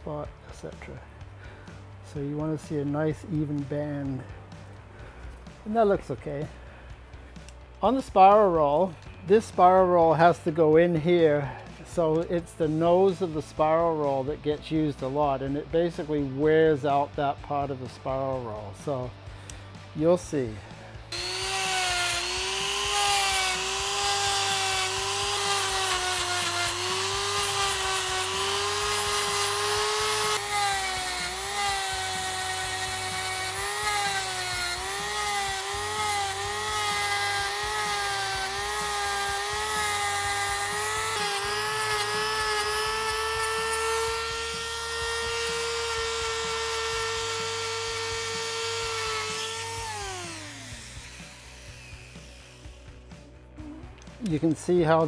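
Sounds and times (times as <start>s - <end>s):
die grinder whine: 20.4s - 54.0s.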